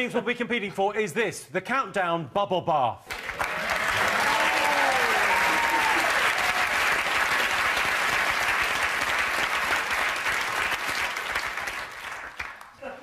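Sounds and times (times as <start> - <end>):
audience applauding: 3.1 - 12.8.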